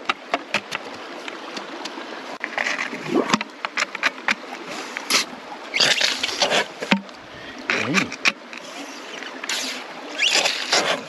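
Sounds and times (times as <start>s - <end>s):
suction gun slurping water: 7.7s - 11.0s.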